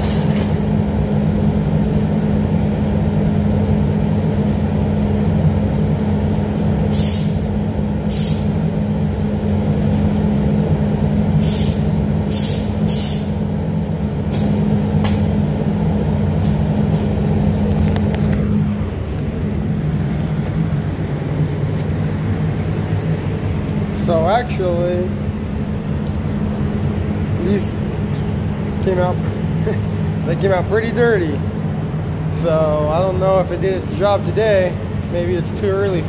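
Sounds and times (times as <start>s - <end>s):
ventilation hum: 0.0s - 36.0s
high air hiss bursts: 6.9s - 7.4s, 8.1s - 8.6s, 11.4s - 13.4s.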